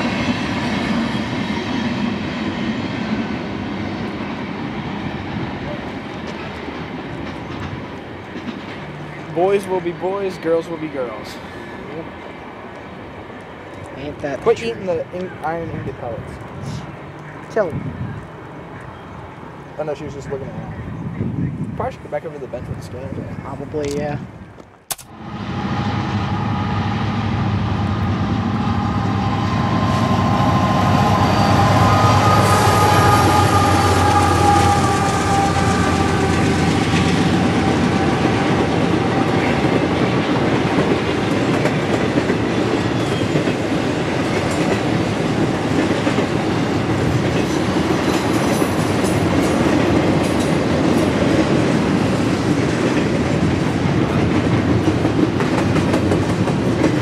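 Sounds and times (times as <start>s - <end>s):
diesel locomotive engines droning: 0.0s - 57.0s
train wheels clattering on rails: 5.9s - 9.8s, 30.2s - 57.0s.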